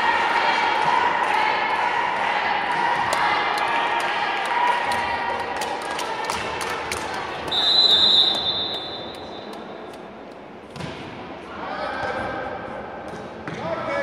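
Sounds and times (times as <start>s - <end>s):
referee's whistle: 7.5s - 9.5s
ball bouncing: 10.7s - 11.1s.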